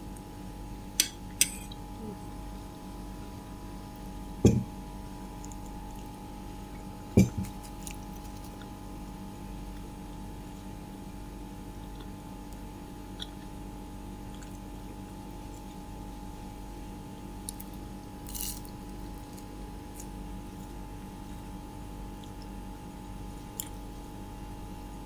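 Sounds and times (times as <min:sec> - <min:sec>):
steady hum: 0:00.0 - 0:25.0
dull thumps: 0:04.4 - 0:04.7, 0:07.2 - 0:07.6
faint wet eating clicks: 0:11.8 - 0:13.6, 0:14.3 - 0:15.8.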